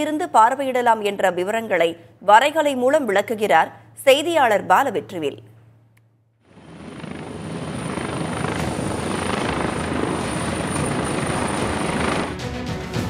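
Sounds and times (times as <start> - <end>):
high turbine whine: 6.4 - 12.5
helicopter rotor and turbine: 6.4 - 12.7
music: 10.8 - 13.0.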